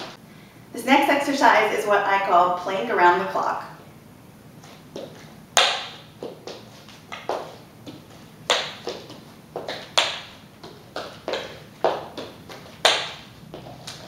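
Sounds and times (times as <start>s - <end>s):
hands and sneakers slapping floor: 4.6s - 14.0s.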